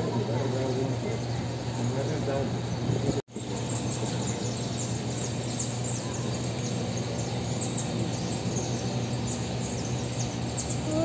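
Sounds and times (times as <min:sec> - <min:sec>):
small birds chirping: 0:00.0 - 0:11.0
steady low hum: 0:00.0 - 0:11.0.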